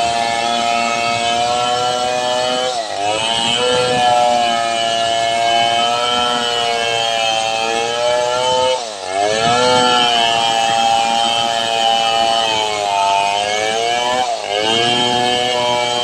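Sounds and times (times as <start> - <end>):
chainsaw cutting a log: 0.0 - 16.0.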